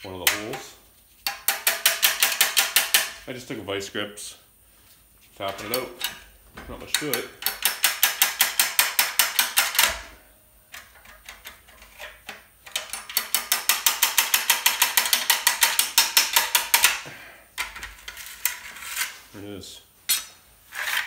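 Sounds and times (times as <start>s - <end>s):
metal-on-metal tapping: 0.2s - 3.2s, 6.8s - 17.0s.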